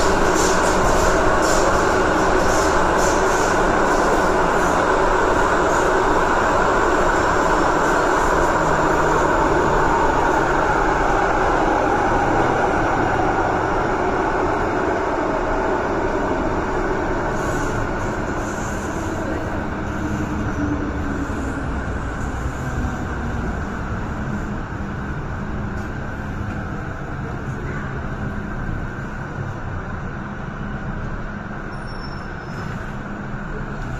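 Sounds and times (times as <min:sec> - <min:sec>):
train wheels rumbling in tunnel: 0:00.0 - 0:33.9.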